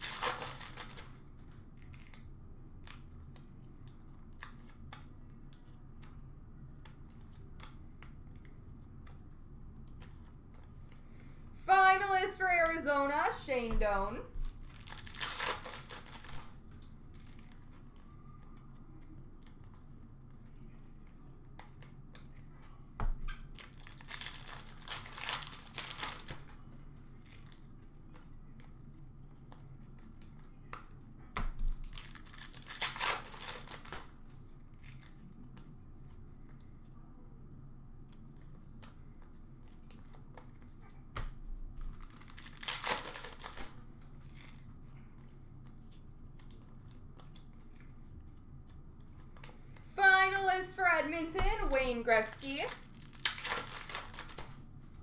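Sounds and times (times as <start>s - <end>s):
foil packs tearing and crinkling: 0.0s - 1.2s, 14.4s - 16.6s, 23.6s - 26.4s, 31.8s - 34.0s, 42.0s - 44.6s, 52.4s - 54.5s.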